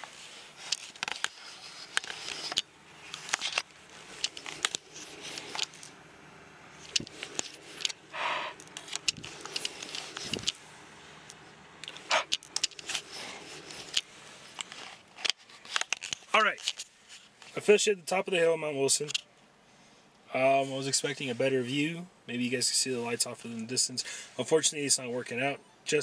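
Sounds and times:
handling noise on microphone: 0.0s - 6.0s, 6.7s - 17.7s.

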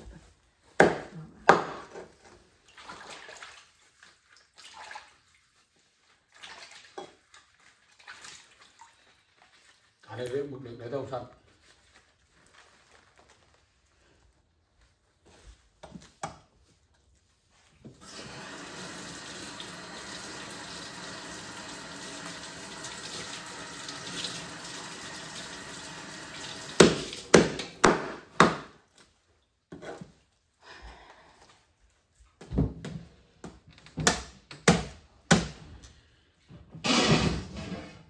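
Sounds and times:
water running from a tap: 18.0s - 27.3s.

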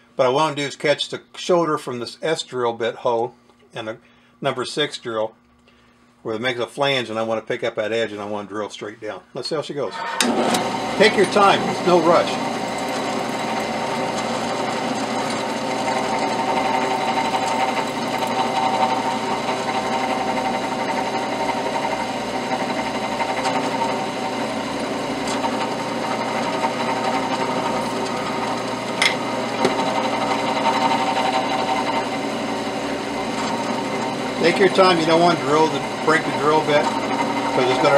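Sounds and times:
drill press motor running: 9.9s - 37.9s
drill bit drilling into metal: 10.0s - 37.9s.

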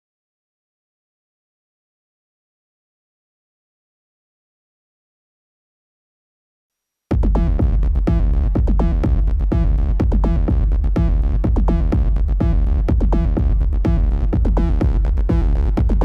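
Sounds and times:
squelchy acid techno bassline: 7.1s - 16.0s.

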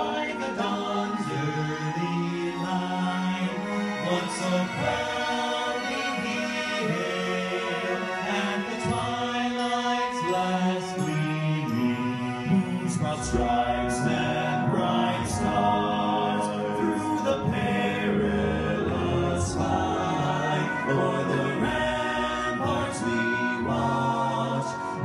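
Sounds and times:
group singing in harmony: 0.0s - 25.0s.

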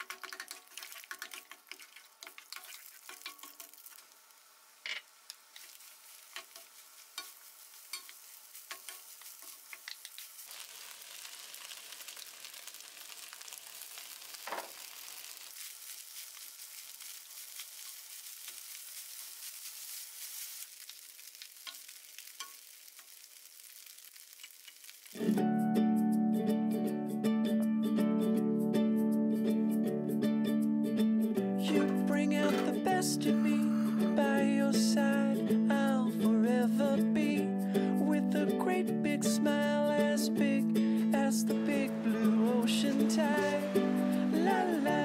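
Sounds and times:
spoon tapping on pan: 0.0s - 3.8s, 6.3s - 9.1s
wooden spoon scraping a pan: 0.0s - 3.8s, 4.9s - 10.4s
food sizzling in a pan: 0.0s - 25.4s, 31.6s - 37.0s, 37.6s - 45.0s.

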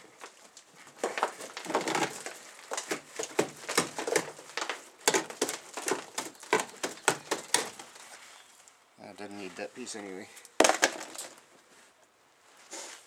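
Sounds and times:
rusted metal floor crunching and cracking: 0.0s - 8.3s, 10.4s - 11.6s
mud and rust flakes pattering: 0.0s - 12.6s.

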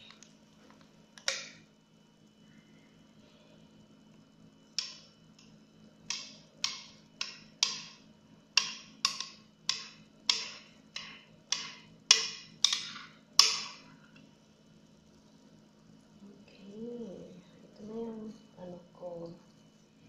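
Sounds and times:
sharp knocks on a mixing bowl: 8.6s - 13.8s.

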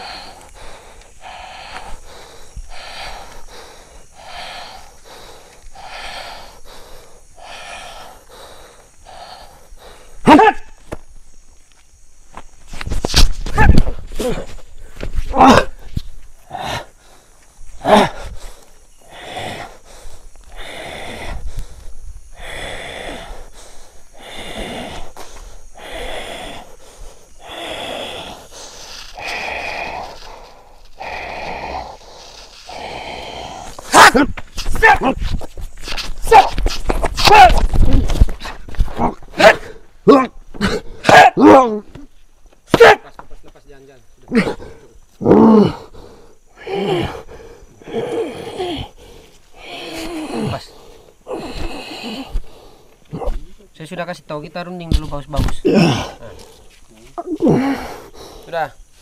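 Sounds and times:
man breathing hard: 0.0s - 10.3s, 14.3s - 34.3s, 44.4s - 53.3s, 57.4s - 59.0s
man shouting: 10.3s - 10.7s, 33.9s - 35.2s, 37.2s - 37.6s.

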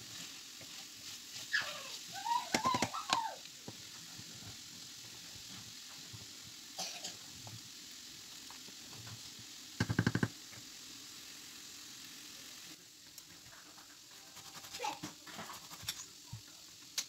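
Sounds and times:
wooden spoon stirring pot: 0.0s - 6.5s
food sizzling in pans: 0.0s - 17.0s.

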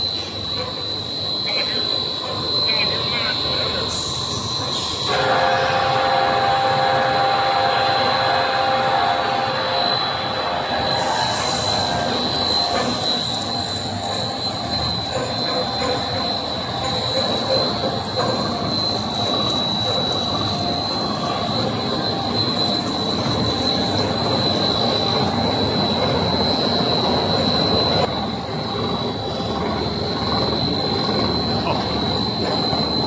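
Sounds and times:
high-pitched machine whine: 0.0s - 33.0s.

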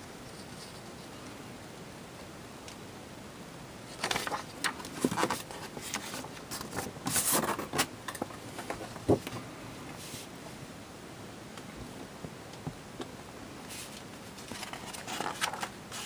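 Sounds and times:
paper rustling against cardboard: 3.9s - 9.3s, 13.7s - 16.0s.

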